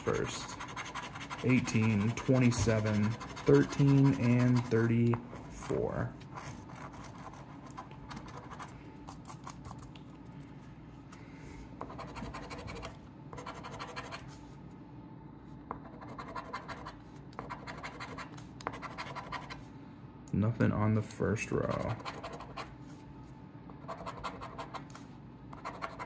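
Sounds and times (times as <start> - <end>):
coin scratching paper ticket: 0.0 - 5.0, 11.9 - 14.2, 15.8 - 19.6, 21.6 - 22.7, 23.8 - 24.9, 25.6 - 26.0.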